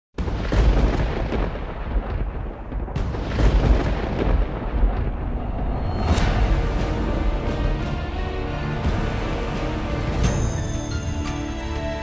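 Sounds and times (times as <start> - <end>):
sharp crack: 0.2 - 7.0
deep rumble with booming hits: 0.2 - 10.5.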